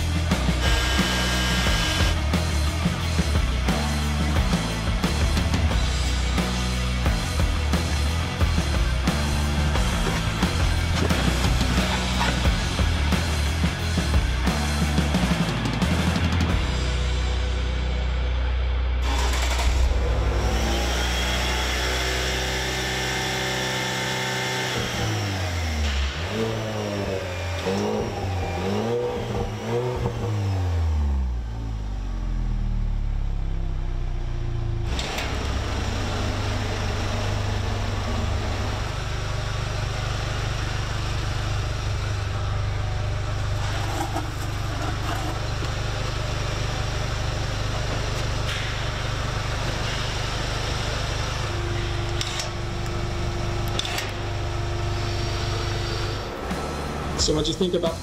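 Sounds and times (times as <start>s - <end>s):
car engine revving: 0.0s - 16.4s, 19.0s - 58.0s
car engine idling: 0.0s - 18.0s, 28.2s - 58.0s.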